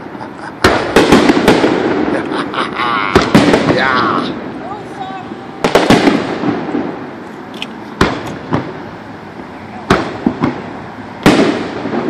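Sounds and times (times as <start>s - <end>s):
fireworks bursting with sharp bangs: 0.0s - 12.0s.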